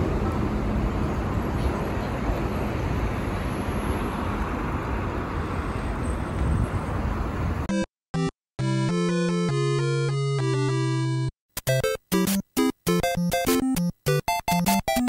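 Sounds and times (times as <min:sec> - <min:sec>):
city street traffic: 0:00.0 - 0:08.3
music: 0:07.7 - 0:15.0.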